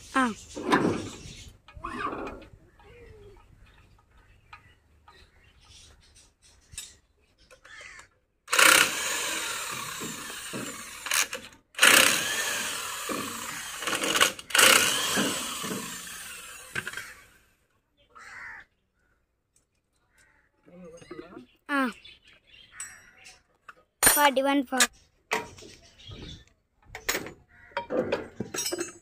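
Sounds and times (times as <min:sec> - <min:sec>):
power tool working on metal: 0:08.5 - 0:17.5.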